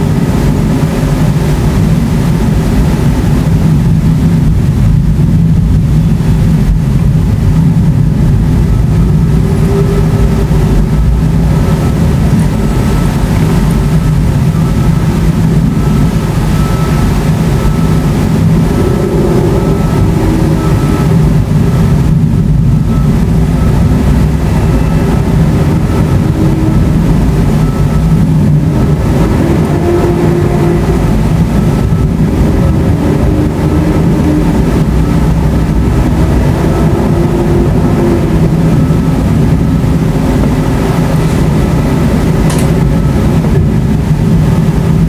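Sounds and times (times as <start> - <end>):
thunder rumbling: 0.0 - 45.0.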